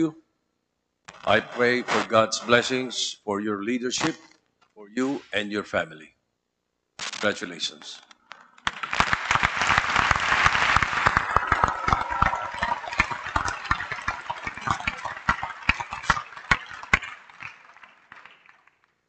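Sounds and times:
audience applauding: 0:08.6 - 0:18.8.

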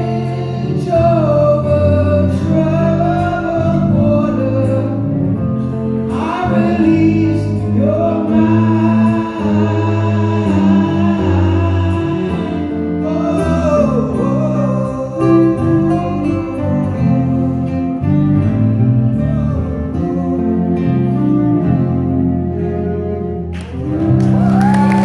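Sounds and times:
man singing: 0:00.0 - 0:23.2
acoustic guitar: 0:00.0 - 0:25.0
cello: 0:00.0 - 0:25.0
audience applause: 0:23.6 - 0:25.0.

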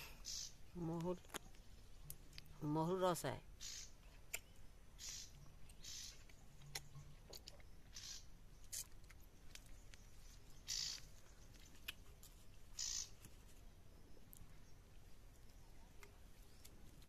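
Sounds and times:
person chewing: 0:11.5 - 0:12.5.

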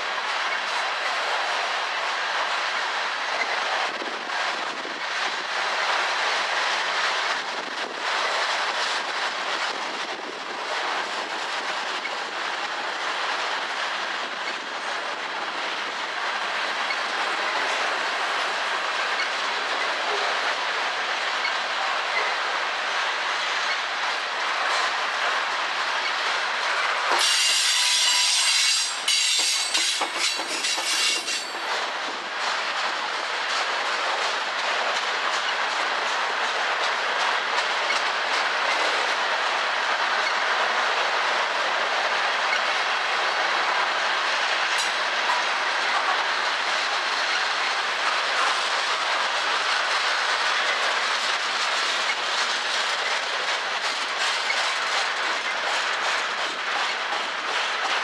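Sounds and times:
freight train wheels clicking over rail joints: 0:00.0 - 0:58.0
high-pitched wheel squeal: 0:27.2 - 0:31.5.

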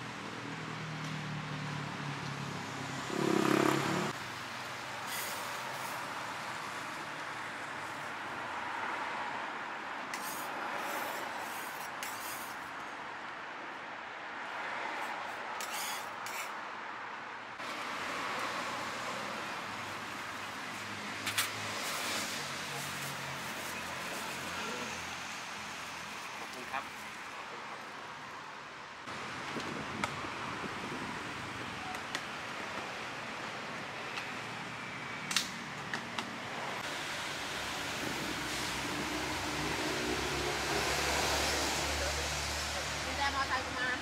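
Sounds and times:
street traffic noise: 0:00.0 - 0:44.0
metal spatula scraping griddle: 0:10.2 - 0:12.6, 0:15.6 - 0:16.5.

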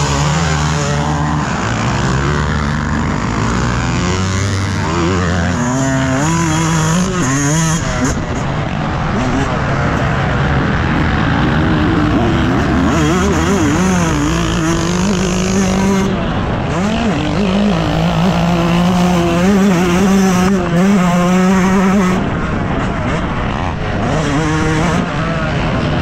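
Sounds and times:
motocross bike engine revving: 0:00.0 - 0:26.0.

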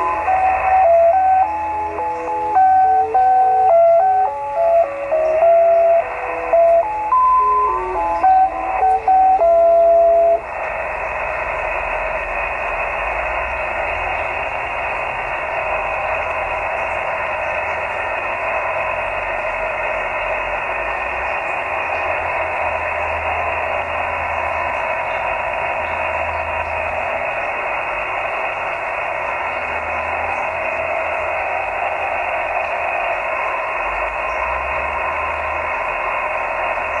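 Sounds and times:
electronic tone tune: 0:00.0 - 0:10.5
faint steady whistles: 0:00.0 - 0:37.0
shortwave radio static hiss: 0:00.0 - 0:37.0.

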